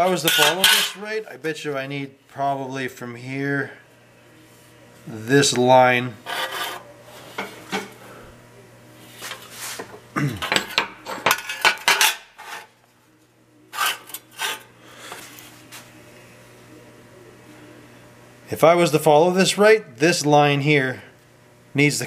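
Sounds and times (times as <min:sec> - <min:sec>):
steel sheet clanking on workbench: 0:00.1 - 0:01.0.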